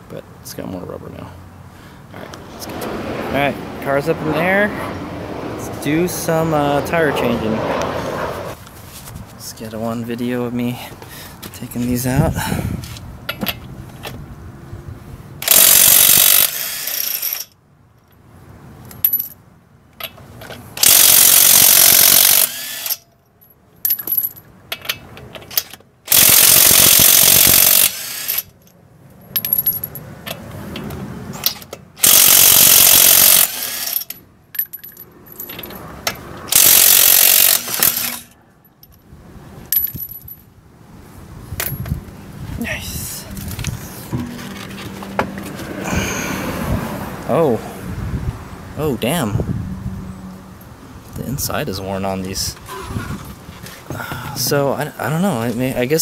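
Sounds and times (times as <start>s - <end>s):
impact wrench bursts: 15.4s - 17.5s, 20.8s - 23.0s, 25.5s - 28.6s, 31.4s - 34.2s, 36.5s - 38.4s.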